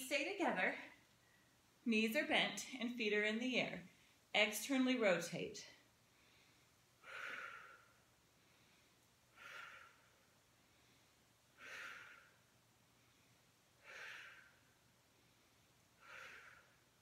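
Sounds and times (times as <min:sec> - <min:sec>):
woman breathing hard: 0:06.1 - 0:17.0.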